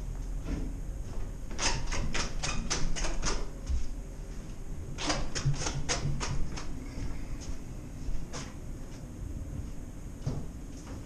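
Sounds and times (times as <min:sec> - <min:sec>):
low steady hum: 0:00.0 - 0:11.0
quick footsteps on hard stairs: 0:09.5 - 0:11.0.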